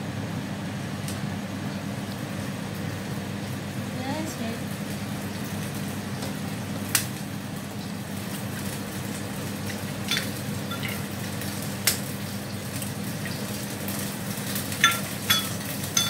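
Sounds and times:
induction cooktop humming: 0.0s - 16.0s.

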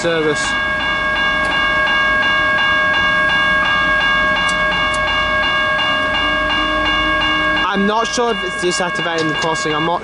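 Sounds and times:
diesel railcar engine hum: 0.0s - 10.0s
level crossing bell ringing: 0.0s - 10.0s.

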